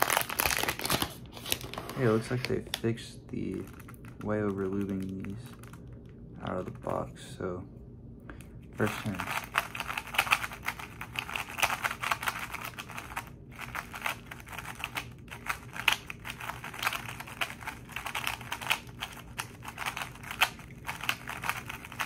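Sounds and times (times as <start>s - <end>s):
puzzle cube plastic clicks: 8.8s - 22.0s.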